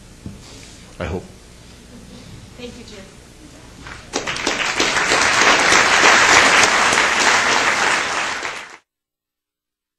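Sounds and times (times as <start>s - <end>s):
audience applauding: 3.8s - 8.8s.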